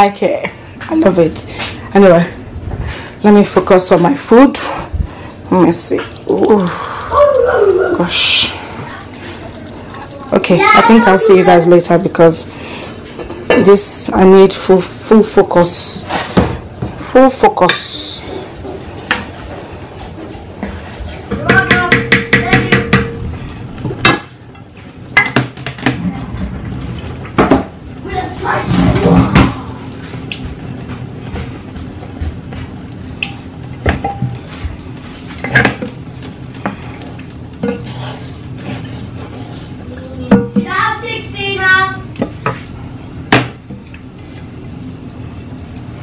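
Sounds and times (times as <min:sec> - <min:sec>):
spatula and pans knocking: 0:21.3 - 0:23.2, 0:25.2 - 0:26.1, 0:33.2 - 0:34.4, 0:37.6 - 0:38.2, 0:40.3 - 0:40.7
utensils scraping a frying pan: 0:35.1 - 0:40.6.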